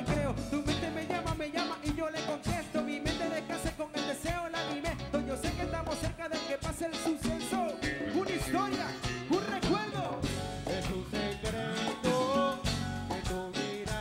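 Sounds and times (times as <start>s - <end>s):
drum beat: 0.0s - 14.0s
live band playing: 0.0s - 14.0s
person singing: 0.0s - 14.0s.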